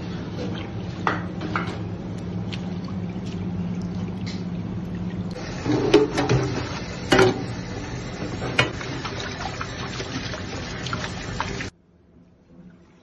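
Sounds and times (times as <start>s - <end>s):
tap water splashing into a pan: 8.2s - 9.6s.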